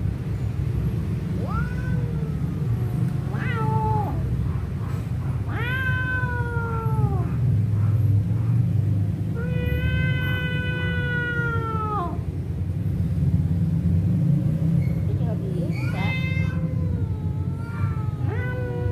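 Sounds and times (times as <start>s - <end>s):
cat yowling: 1.3s - 4.4s, 5.4s - 7.5s, 9.2s - 12.4s, 15.6s - 18.9s.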